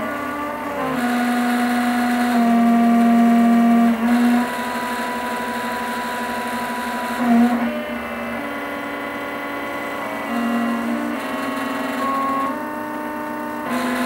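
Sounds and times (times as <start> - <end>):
stepper motors whining: 0.0 - 14.0.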